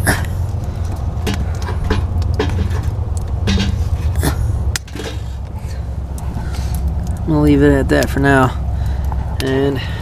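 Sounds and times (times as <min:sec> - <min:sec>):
steady low rumble: 0:00.0 - 0:10.0
firewood knocking together: 0:00.9 - 0:03.9.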